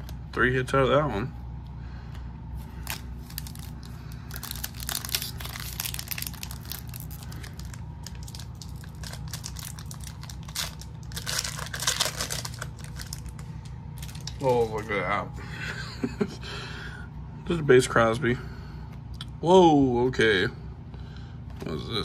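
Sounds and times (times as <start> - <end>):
low steady hum: 0.0 - 22.0
foil wrapper crinkling and tearing: 2.7 - 15.1.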